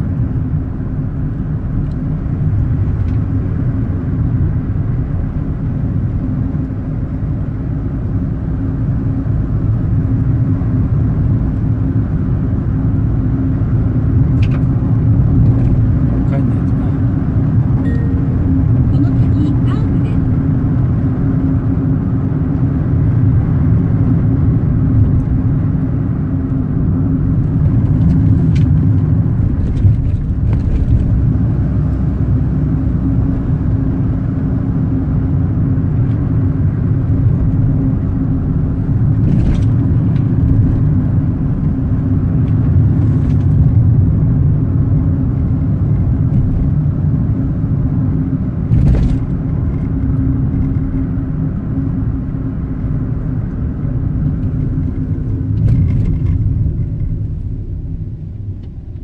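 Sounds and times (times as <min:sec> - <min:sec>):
car engine and tyre noise: 0:00.0 - 0:59.0.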